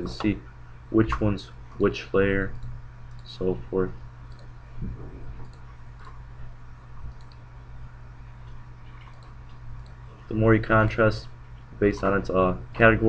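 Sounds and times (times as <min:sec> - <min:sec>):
low electrical hum: 0:00.0 - 0:13.0
computer mouse clicks: 0:02.5 - 0:03.3, 0:04.3 - 0:04.6, 0:05.4 - 0:06.2, 0:06.9 - 0:07.5, 0:08.4 - 0:10.0.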